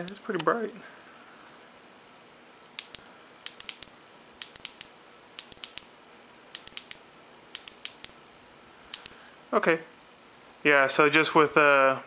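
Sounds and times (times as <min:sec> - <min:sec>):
flashlight switch clicking: 0:02.8 - 0:05.9, 0:06.5 - 0:08.2, 0:08.9 - 0:09.2.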